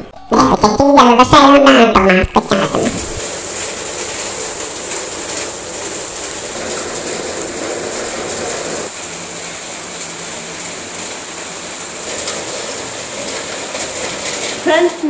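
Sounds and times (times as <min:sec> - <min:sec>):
heavy rain on trees: 0:01.3 - 0:15.0.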